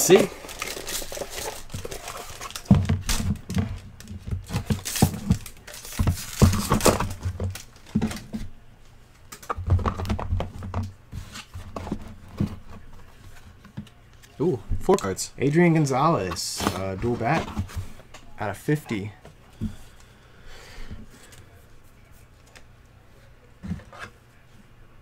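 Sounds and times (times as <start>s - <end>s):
foil wrapper crinkling: 0.0s - 3.5s, 4.6s - 7.9s
handling knocks and thumps: 16.2s - 18.1s.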